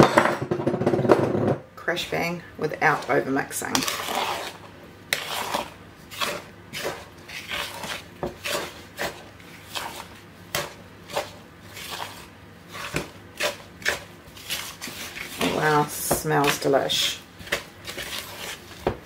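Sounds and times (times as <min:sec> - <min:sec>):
wooden spoon stirring batter: 0:02.0 - 0:19.0.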